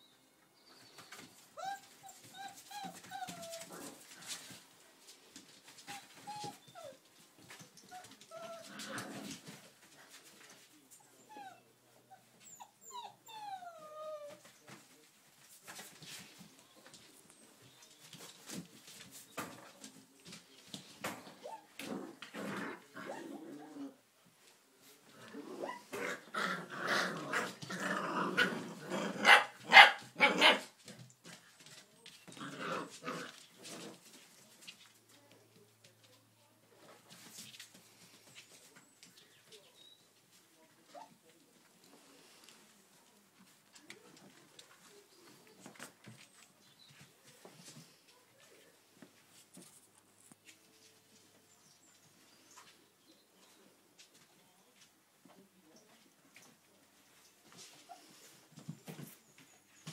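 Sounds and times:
puppies whimpering and yipping: 1.6s - 3.7s, 12.4s - 14.4s
puppies growling: 25.2s - 29.4s, 32.2s - 34.2s
puppies barking: 29.1s - 30.8s.

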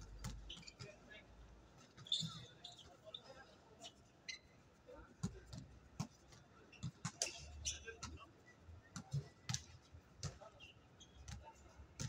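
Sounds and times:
basketball bouncing on hard court: 0.1s - 0.5s.

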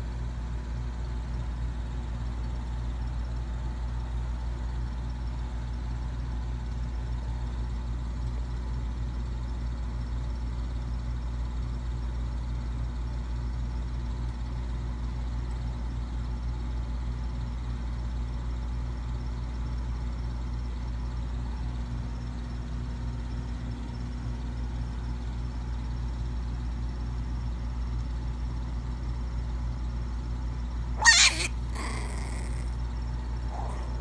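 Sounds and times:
low room hum: 0.0s - 34.0s
puppy snarling: 31.0s - 34.0s.

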